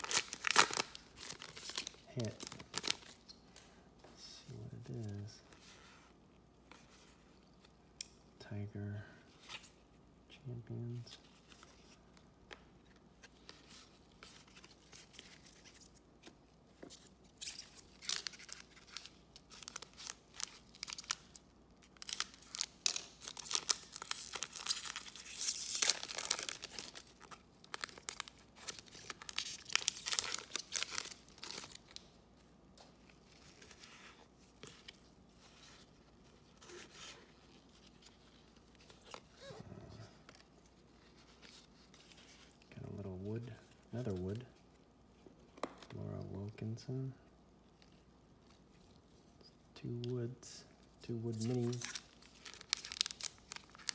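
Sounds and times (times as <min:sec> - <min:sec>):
plastic wrapper crackling: 0:00.0 - 0:03.4, 0:17.5 - 0:32.2, 0:51.4 - 0:53.9.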